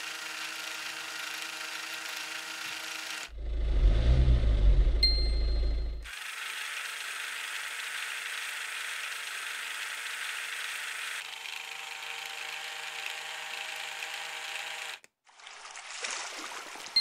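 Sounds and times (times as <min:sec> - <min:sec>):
toy electric motor whirring: 0:00.0 - 0:03.4, 0:06.0 - 0:15.1.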